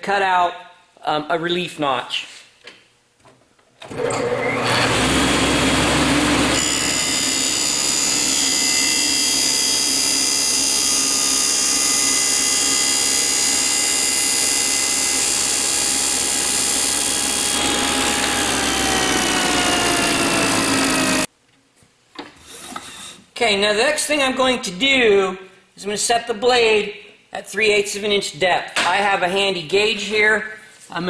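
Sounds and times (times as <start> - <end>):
table saw running: 3.9 - 21.3.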